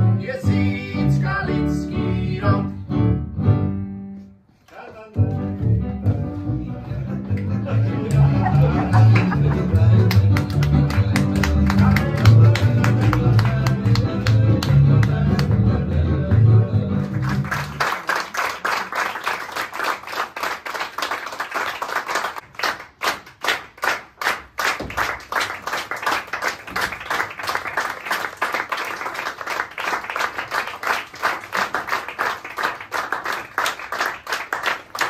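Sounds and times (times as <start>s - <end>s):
audience applauding: 7.3s - 35.0s.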